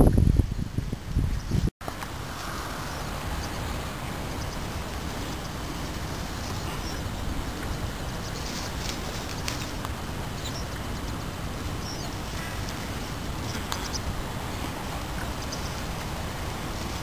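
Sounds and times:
bird chirps: 5.3 - 9.6, 10.3 - 14.1.

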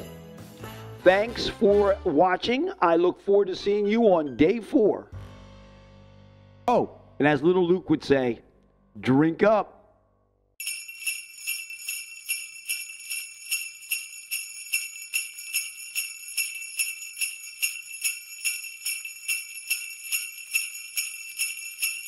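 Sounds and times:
sleigh bells jingling: 0.0 - 1.5, 10.6 - 22.0.

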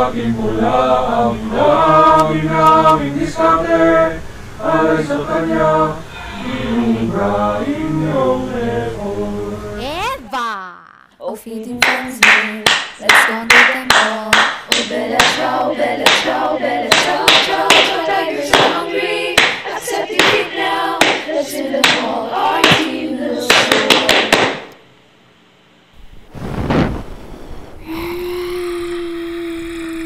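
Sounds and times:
steady low tone: 0.0 - 10.0
hand claps: 11.8 - 15.4, 16.0 - 16.3, 16.9 - 18.8, 19.4 - 19.6, 20.2 - 20.4, 21.0 - 22.9, 23.5 - 24.7
cheer squad chanting: 14.1 - 24.4.

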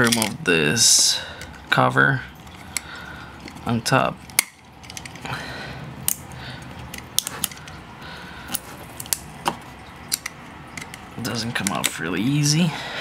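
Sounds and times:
plastic pry tool scraping and clicking: 6.8 - 7.8.

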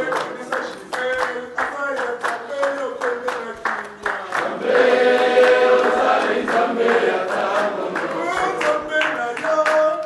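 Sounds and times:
hand-clapping: 0.0 - 10.0
congregation singing: 3.2 - 9.4.

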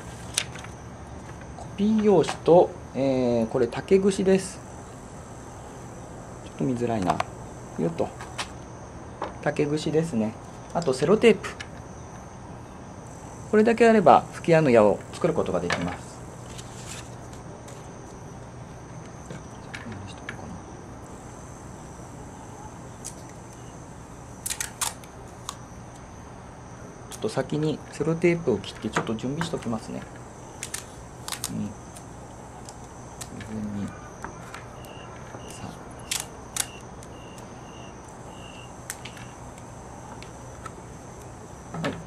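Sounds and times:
crickets chirring: 0.0 - 42.0
tape tearing clicks and snaps: 24.4 - 25.6, 30.6 - 33.4, 35.4 - 37.4.

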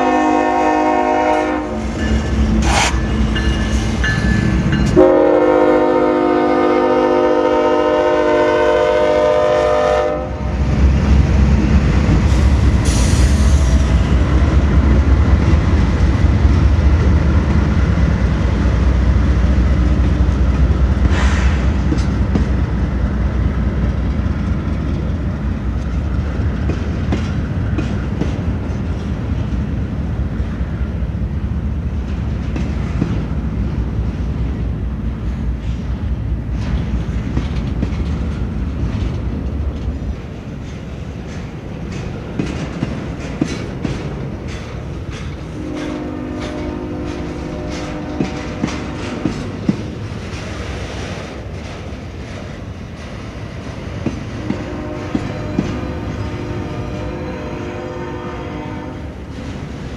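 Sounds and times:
locomotive air horn: 0.0 - 2.0, 4.9 - 10.6, 45.5 - 49.5, 54.4 - 59.2
train cars rumbling on rails: 0.0 - 59.9.

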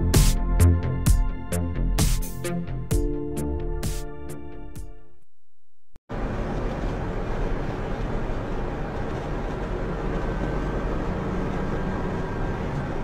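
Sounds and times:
truck engine drone: 6.1 - 13.0.

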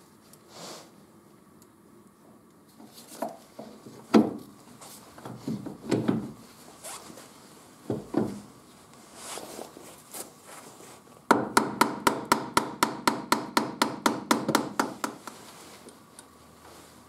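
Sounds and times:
gloves rubbing and rustling: 2.7 - 11.3, 15.1 - 17.0.

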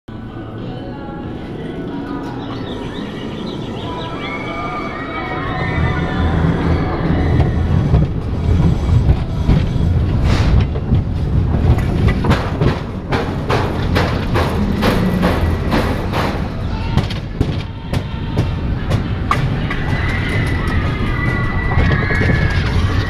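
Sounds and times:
roller coaster rumble on track: 0.1 - 23.0
wheels clattering: 5.4 - 23.0.

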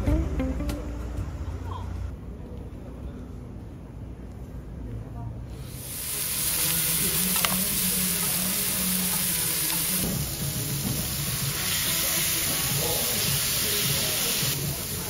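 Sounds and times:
meat sizzling on a griddle: 5.7 - 15.0.

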